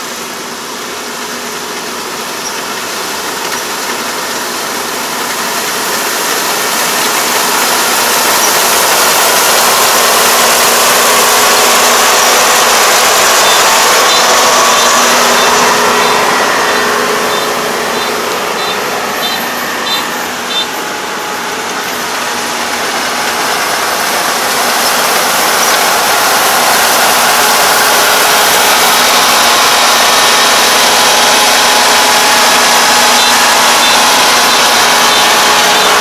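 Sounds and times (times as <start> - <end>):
combine harvester running: 0.0 - 36.0
faint high beep: 13.4 - 20.8.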